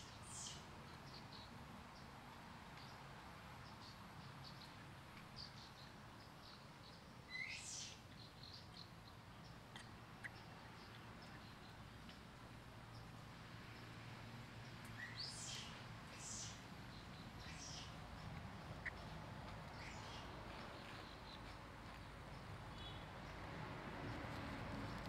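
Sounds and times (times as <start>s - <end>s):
faint bird chirps: 5.4s - 11.8s, 14.9s - 19.1s.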